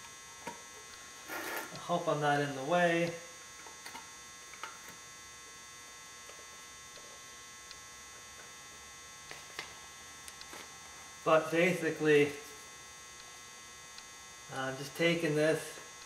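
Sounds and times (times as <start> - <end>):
electrical hum: 0.0 - 16.0.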